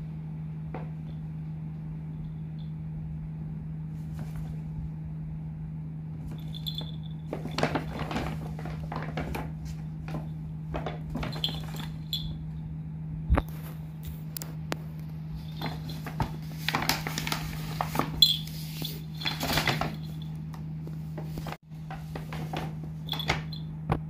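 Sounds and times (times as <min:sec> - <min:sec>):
steady low hum: 0:00.0 - 0:24.0
paper bag crackling and rustling: 0:06.2 - 0:12.2, 0:15.4 - 0:20.3, 0:21.0 - 0:23.6
collar bell jingling: 0:06.4 - 0:07.3, 0:11.3 - 0:12.4.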